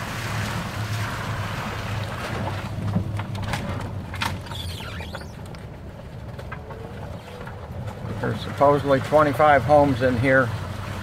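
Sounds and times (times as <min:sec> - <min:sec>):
vehicle drive drone: 0:00.0 - 0:11.0
knocks and rattles: 0:02.4 - 0:08.2.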